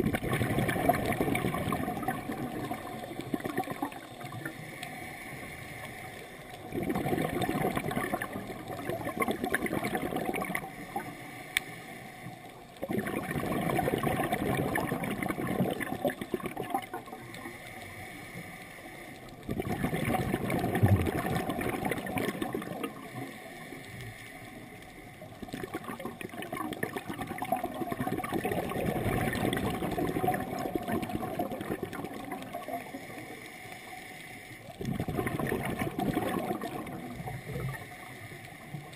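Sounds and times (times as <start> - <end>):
gurgling exhaled bubbles: 0.0 - 4.6, 6.5 - 11.1, 12.7 - 17.5, 19.3 - 23.3, 25.2 - 33.2, 34.7 - 38.1
diver inhaling through regulator: 10.4 - 12.5, 17.3 - 19.3, 32.8 - 34.7, 36.6 - 38.9.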